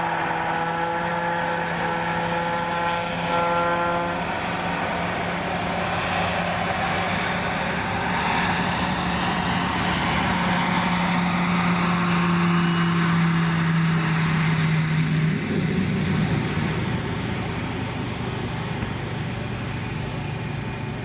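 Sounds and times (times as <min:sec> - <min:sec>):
turboprop engine hum: 0:00.0 - 0:21.0.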